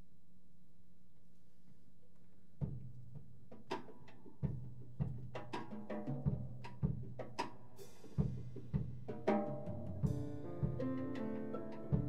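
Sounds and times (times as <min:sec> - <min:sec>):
deep drum-like thuds: 0:08.2 - 0:12.0.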